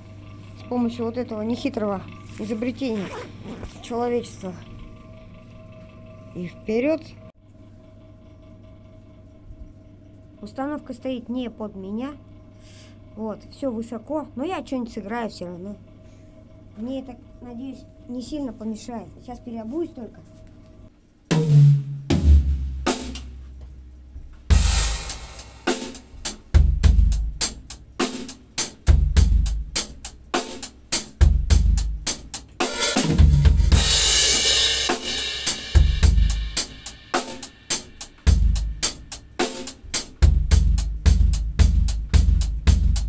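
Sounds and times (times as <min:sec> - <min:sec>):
drum kit groove: 0:21.3 - 0:43.0
cymbal wash: 0:24.5 - 0:26.1, 0:32.7 - 0:39.8.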